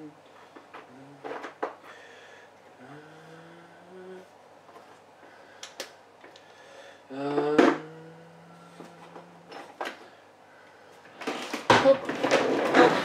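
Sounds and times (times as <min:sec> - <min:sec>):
low steady drone: 0:02.8 - 0:04.3, 0:07.1 - 0:09.8.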